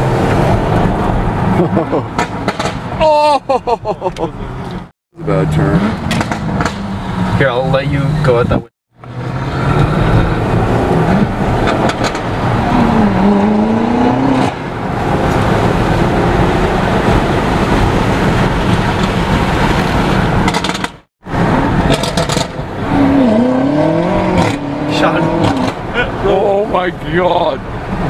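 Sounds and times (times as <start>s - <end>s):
road noise: 0.0s - 28.0s
car engine revving: 4.7s - 26.4s.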